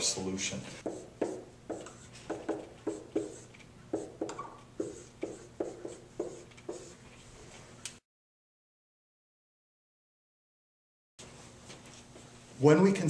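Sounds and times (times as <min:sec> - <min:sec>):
marker writing on whiteboard: 0:00.8 - 0:07.0.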